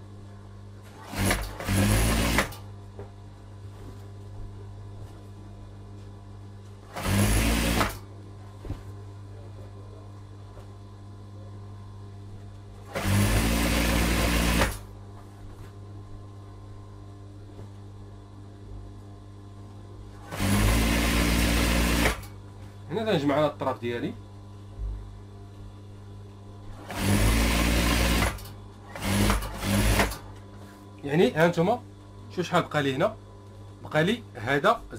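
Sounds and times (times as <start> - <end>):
steady low hum: 0.0 - 34.9
sewing machine stitching: 0.9 - 2.6, 6.9 - 8.0, 12.9 - 14.8, 20.2 - 22.3, 26.8 - 30.3.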